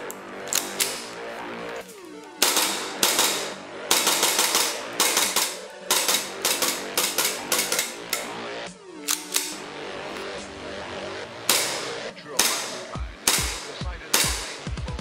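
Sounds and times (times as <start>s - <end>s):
background music: 0.0s - 15.0s
airsoft pistol shots: 2.4s - 8.3s, 11.5s - 14.7s.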